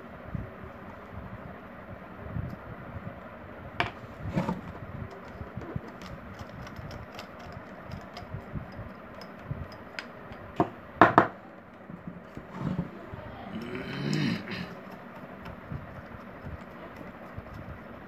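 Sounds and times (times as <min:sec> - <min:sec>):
screwdriver prying metal casing: 0:05.2 - 0:10.4.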